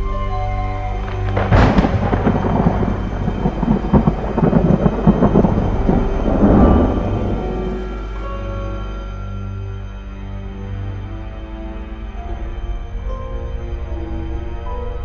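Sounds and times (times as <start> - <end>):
low music drone: 0.0 - 15.0
rain: 0.0 - 15.0
thunder crack and rumble: 1.0 - 8.3.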